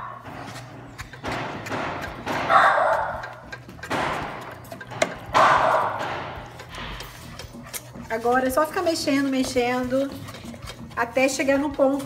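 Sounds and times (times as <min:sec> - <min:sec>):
wooden spoon scraping pot: 0:00.0 - 0:12.0
spoon knocking against pot: 0:00.6 - 0:07.6.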